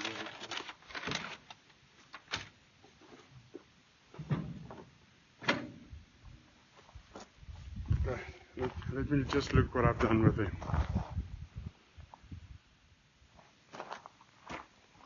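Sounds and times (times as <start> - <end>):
rummaging through tools: 0.0 - 2.5
knocks clunks and rustles: 4.1 - 5.9.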